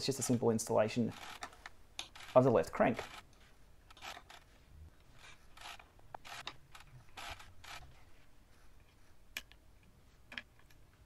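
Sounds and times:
hex key metal clicks and scrapes: 1.0 - 3.3, 3.9 - 7.9.

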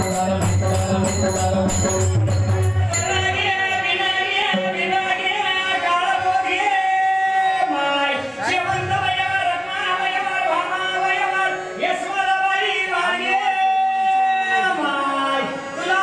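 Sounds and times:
jingling hand cymbals: 0.0 - 4.7
harmonium notes: 0.0 - 16.0
man singing: 0.0 - 16.0.

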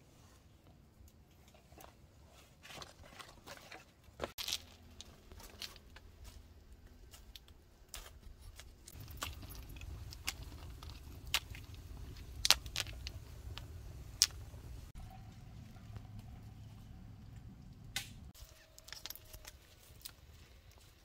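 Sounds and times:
fire popping and crackling: 7.1 - 15.0
rush of flame: 8.9 - 15.0.

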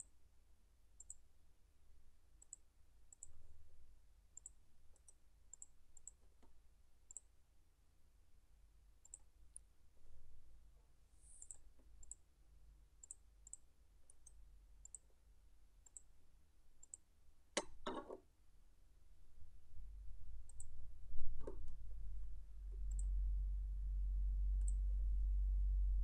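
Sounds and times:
computer mouse clicking: 1.0 - 1.2, 2.4 - 3.4, 4.4 - 6.2, 7.1 - 7.3, 9.0 - 9.3, 11.4 - 12.2, 13.0 - 15.1, 15.8 - 16.1, 16.8 - 17.0, 20.5 - 20.7.

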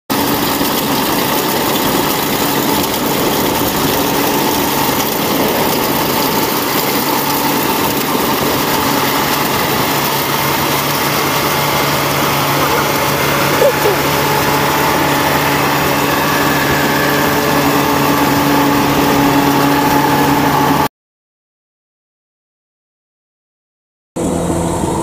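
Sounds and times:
combine harvester running: 0.1 - 20.9, 24.2 - 25.0.

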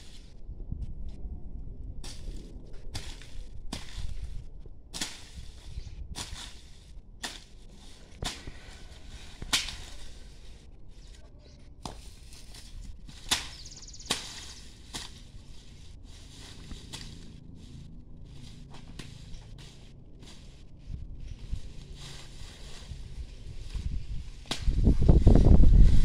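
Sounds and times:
hand tool striking soil and weeds: 2.0 - 10.3, 11.8 - 15.4, 16.2 - 17.4, 18.4 - 20.6, 24.4 - 24.9.

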